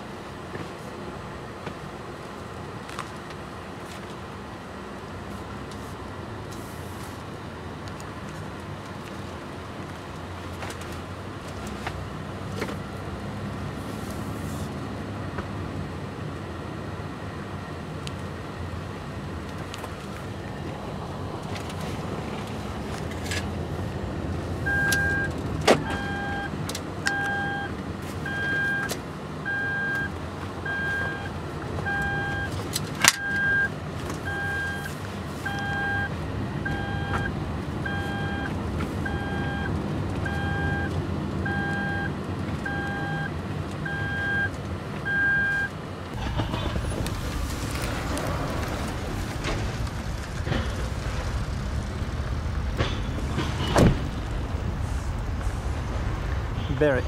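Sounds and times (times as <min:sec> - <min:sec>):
engine and road noise hum: 0:00.0 - 0:57.0
electronic warning chime beeping: 0:24.7 - 0:25.3, 0:25.9 - 0:26.5, 0:27.1 - 0:27.7, 0:28.3 - 0:28.9, 0:29.5 - 0:31.3, 0:31.9 - 0:32.5, 0:33.2 - 0:33.7, 0:34.3 - 0:36.1, 0:36.7 - 0:40.9, 0:41.5 - 0:42.1, 0:42.7 - 0:43.3, 0:43.9 - 0:44.5.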